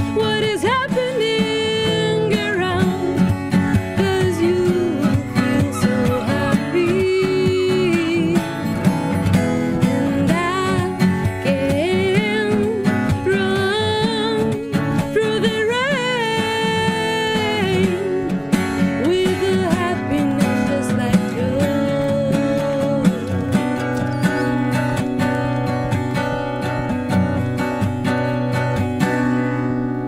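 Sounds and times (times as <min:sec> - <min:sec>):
woman singing: 0:00.0 - 0:08.7, 0:09.8 - 0:23.7
strummed acoustic guitar: 0:00.0 - 0:30.0.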